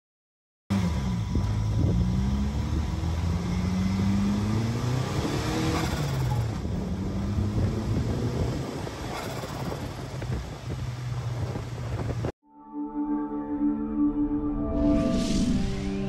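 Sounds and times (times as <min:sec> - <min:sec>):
car engine accelerating: 0:00.7 - 0:12.3.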